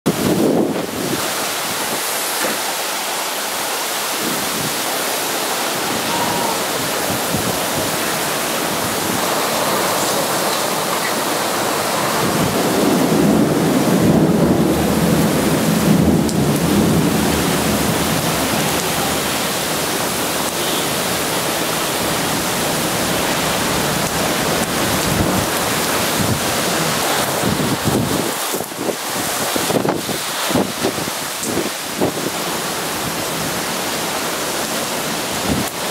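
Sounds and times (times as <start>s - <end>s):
heavy rain hissing: 0.1s - 35.9s
thunder rumble: 4.2s - 31.2s.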